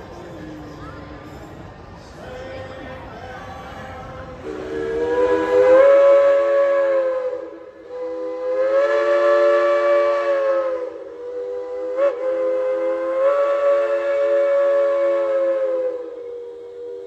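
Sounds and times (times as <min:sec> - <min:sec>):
steam locomotive whistle: 0:04.4 - 0:17.0.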